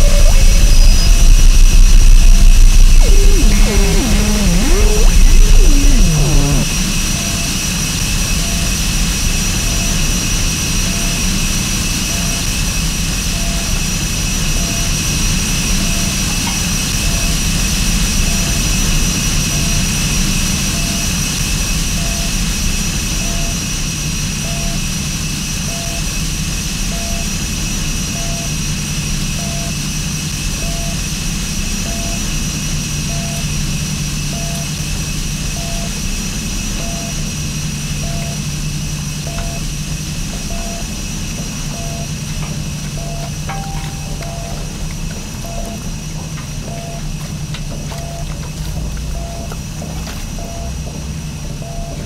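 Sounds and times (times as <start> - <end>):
high whistling tones: 0.0 - 1.5, 3.0 - 6.7
falling pitch glides: 0.0 - 6.8
low hum: 0.0 - 6.9.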